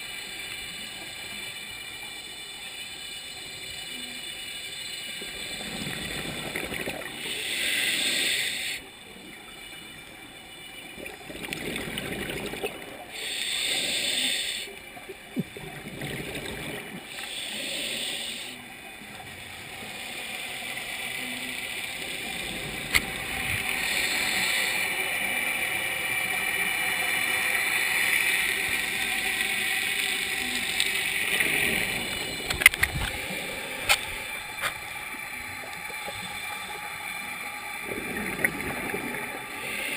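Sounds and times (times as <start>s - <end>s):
steady hiss: 0.0s - 9.6s, 13.1s - 15.4s, 16.3s - 39.9s
underwater regulator bubbles: 11.0s - 13.0s, 37.8s - 39.9s.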